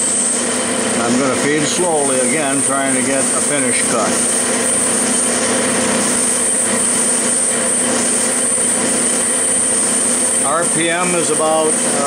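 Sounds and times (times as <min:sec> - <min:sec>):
high machine whine: 0:00.0 - 0:12.0
metal lathe running: 0:00.0 - 0:12.0.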